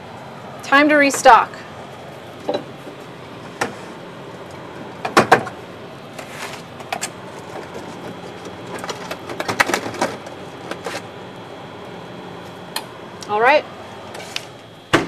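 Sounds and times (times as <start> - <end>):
cans and containers knocking on shelves: 5.0 - 5.5.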